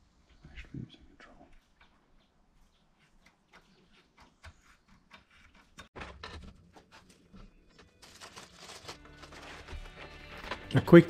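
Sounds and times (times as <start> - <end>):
plastic bag crinkling: 7.7 - 10.8.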